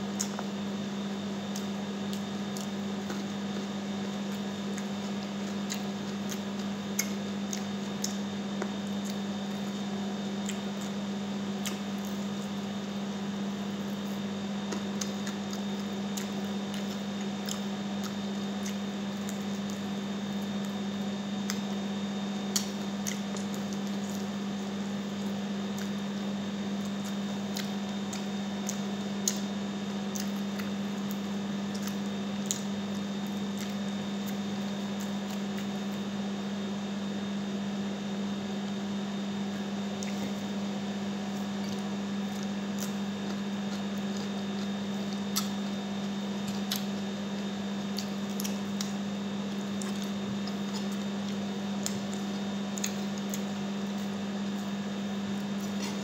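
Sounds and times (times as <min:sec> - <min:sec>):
steady low hum: 0:00.0 - 0:56.0
chewing: 0:00.1 - 0:00.6, 0:01.4 - 0:36.0, 0:39.5 - 0:40.6, 0:41.2 - 0:56.0.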